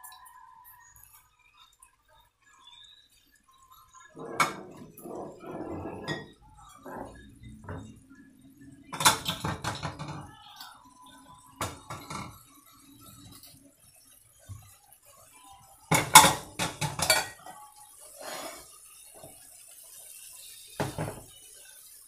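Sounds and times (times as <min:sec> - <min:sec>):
utensil scraping in wok: 0:18.1 - 0:18.9.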